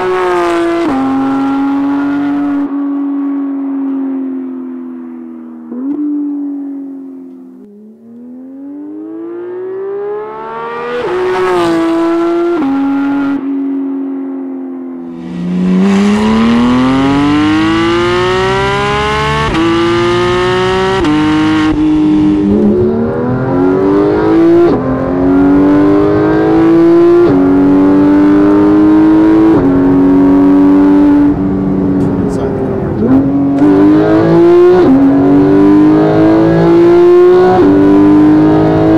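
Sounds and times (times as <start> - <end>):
sports car engine accelerating: 0.0 - 38.9.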